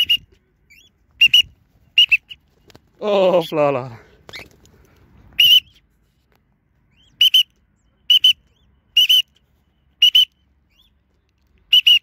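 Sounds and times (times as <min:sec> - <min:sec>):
short high whistled calls: 0:00.0 - 0:02.4, 0:05.4 - 0:05.9, 0:06.9 - 0:11.0, 0:11.7 - 0:12.0.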